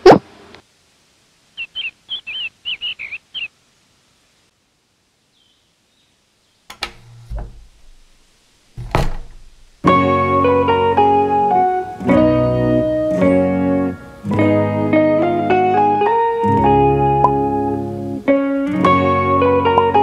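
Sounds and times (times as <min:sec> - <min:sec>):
bird chirping: 0:01.6 - 0:03.6, 0:05.3 - 0:06.7
sharp knocks: 0:06.7 - 0:08.2, 0:08.8 - 0:09.9
low thud: 0:08.8 - 0:09.9.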